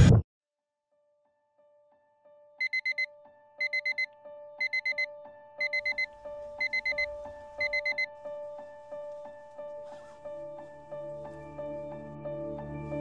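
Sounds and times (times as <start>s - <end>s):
soft keyboard background music: 1.7s - 13.0s
alarm clock beeping: 2.6s - 8.1s.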